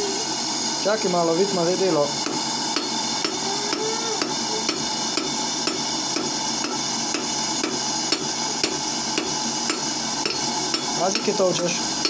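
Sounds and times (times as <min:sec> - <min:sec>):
hammer striking metal on anvil: 0:04.2 - 0:11.4.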